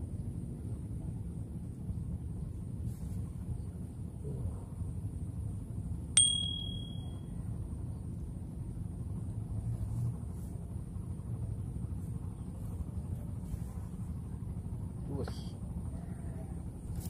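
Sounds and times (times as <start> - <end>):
bright metallic ding: 6.2 - 7.2.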